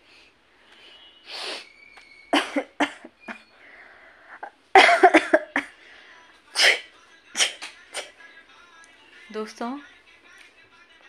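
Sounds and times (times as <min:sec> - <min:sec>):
woman coughing: 0:02.3 - 0:03.4, 0:04.4 - 0:05.8, 0:06.6 - 0:08.1.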